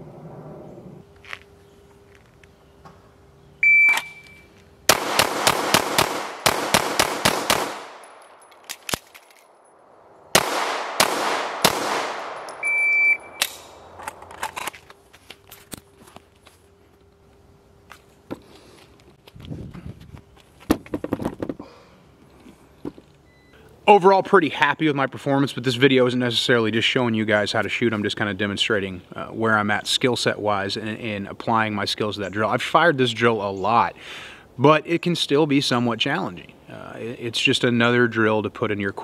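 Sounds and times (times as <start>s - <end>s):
shot timer beep: 3.6s - 4.5s, 12.6s - 13.4s
handgun gunshots: 4.9s - 9.1s, 10.4s - 12.7s.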